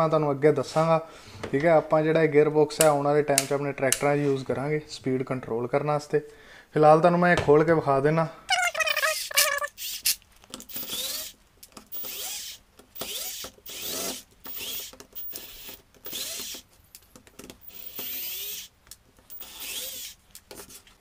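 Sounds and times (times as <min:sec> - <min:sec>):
cordless screwdriver whining: 0:08.7 - 0:16.7, 0:17.6 - 0:18.7, 0:19.3 - 0:20.2.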